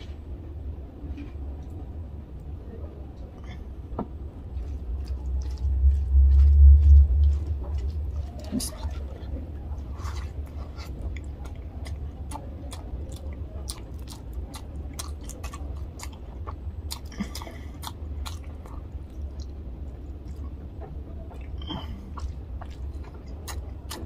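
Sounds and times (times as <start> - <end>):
person chewing with wet mouth clicks: 4.6 - 6.1, 10.9 - 19.6, 21.3 - 24.0.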